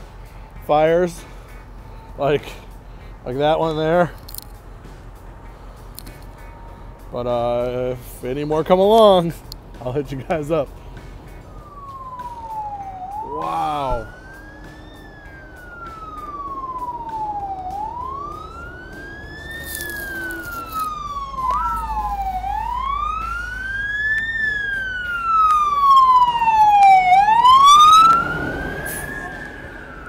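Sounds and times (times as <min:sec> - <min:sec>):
emergency siren wailing: 0:11.2 - 0:30.0
siren short yelps: 0:12.1 - 0:14.2.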